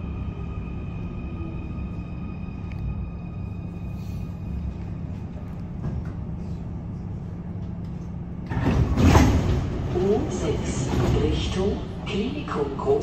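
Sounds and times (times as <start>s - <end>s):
stationary train humming: 0.0s - 13.0s
train doors rushing noise: 8.5s - 11.6s.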